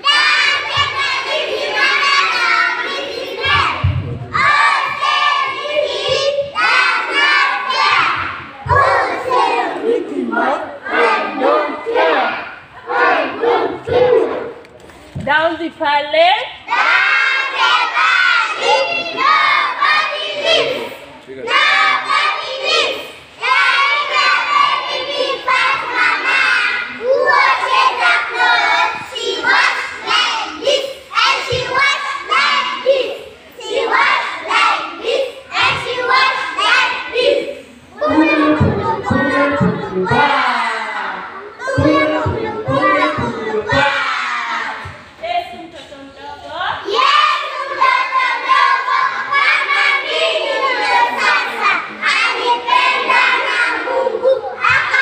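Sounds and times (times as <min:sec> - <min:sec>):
children singing and shouting: 0:00.0 - 0:14.7, 0:16.6 - 0:45.2, 0:46.1 - 0:55.0.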